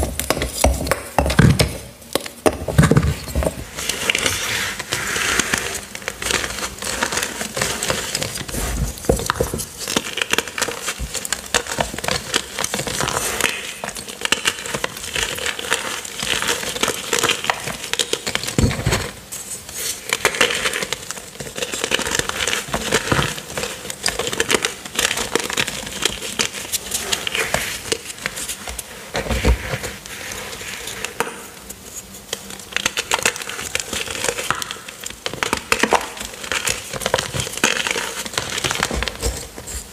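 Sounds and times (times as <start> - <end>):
chalk crunching and crackling: 3.6 - 18.5.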